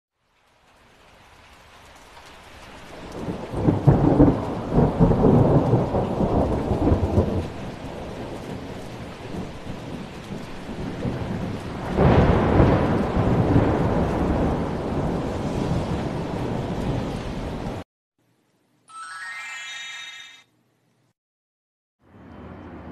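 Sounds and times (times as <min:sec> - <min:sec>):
steady rain: 0:00.1 - 0:17.8
thunder rolling: 0:03.0 - 0:17.8.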